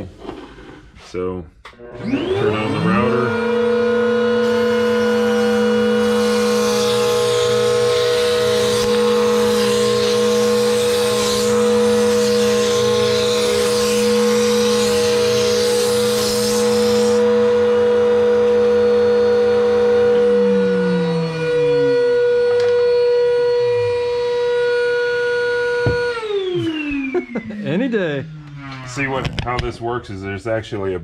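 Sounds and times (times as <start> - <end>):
router whining: 1.7 - 29.8
router bit cutting plastic: 2.0 - 24.8.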